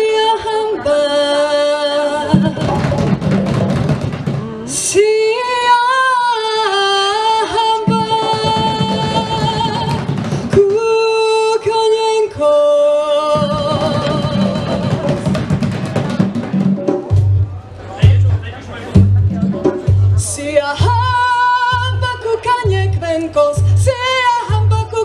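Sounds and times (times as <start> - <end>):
girl singing through a pa: 0.0 - 3.1, 4.3 - 15.3, 20.2 - 25.0.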